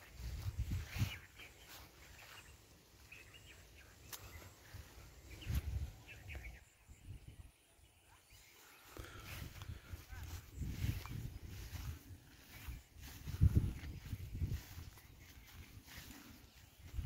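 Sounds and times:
wind on microphone: 0.0s - 1.5s, 4.8s - 7.5s, 9.0s - 17.0s
bird chirps: 0.0s - 9.4s.

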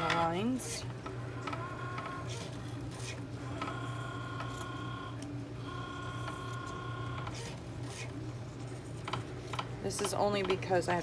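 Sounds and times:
cutting machine motors whining: 0.0s - 8.2s
steady low hum: 0.0s - 11.0s.

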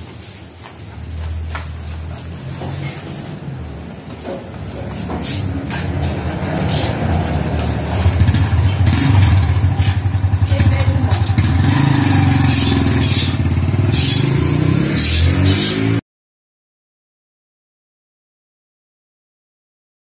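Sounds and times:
motorcycle engine running: 0.9s - 16.0s.

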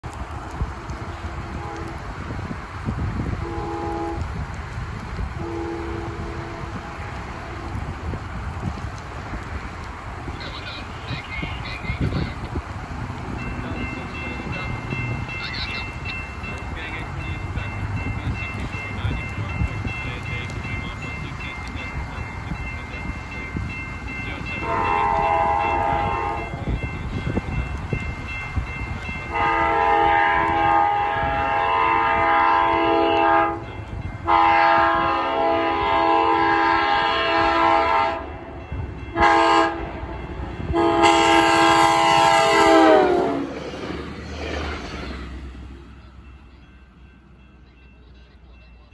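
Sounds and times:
train horn blasts: 1.4s - 2.0s, 3.4s - 4.3s, 5.4s - 7.8s, 24.6s - 26.7s, 29.3s - 38.3s, 39.1s - 40.0s, 40.6s - 43.5s.

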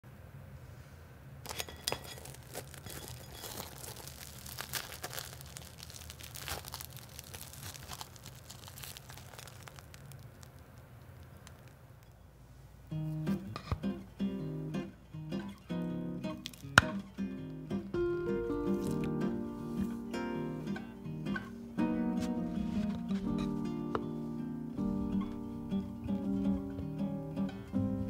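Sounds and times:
fried crust crackling: 1.4s - 13.7s, 16.2s - 17.2s, 18.4s - 20.8s.

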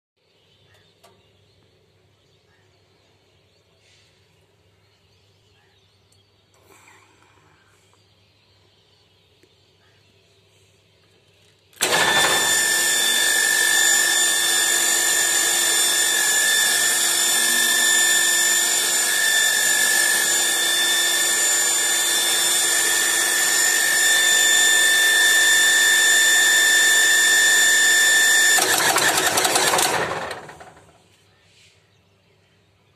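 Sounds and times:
electric pump motor whining: 11.8s - 31.0s
motor rattling winding down: 11.8s - 31.0s.

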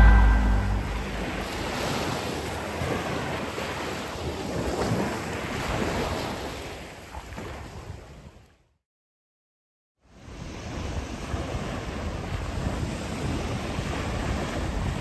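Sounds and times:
sea waves washing in: 0.0s - 3.0s.

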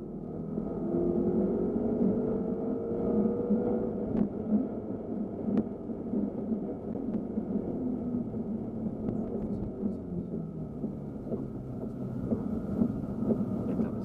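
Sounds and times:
car engine from inside cabin: 0.0s - 14.0s.

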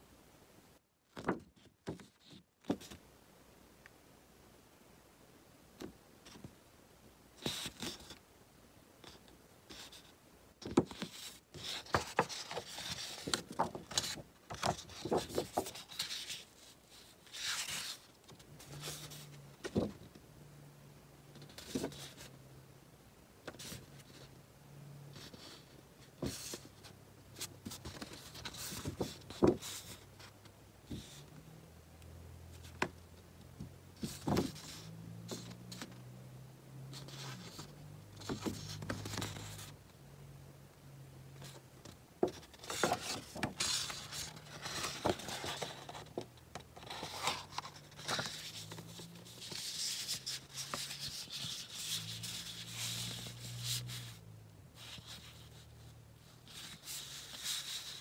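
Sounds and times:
cardstock rustling: 10.6s - 20.0s, 27.4s - 30.0s, 41.4s - 54.1s.

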